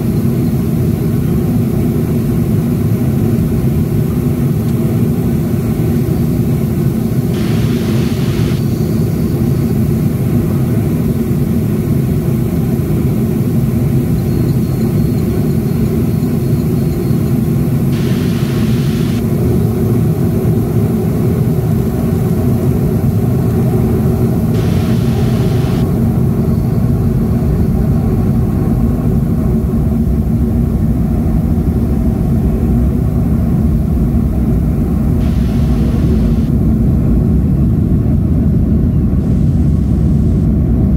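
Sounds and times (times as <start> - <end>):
jet engine low rumble and hum: 0.0 - 40.9
brief hisses: 7.4 - 8.6, 18.0 - 19.2, 24.6 - 25.8, 35.2 - 36.5.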